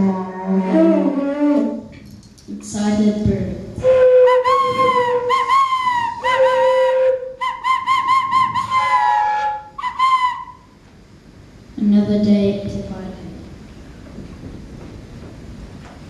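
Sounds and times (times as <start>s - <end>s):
wooden flute bird call chirps: 3.8s - 10.8s.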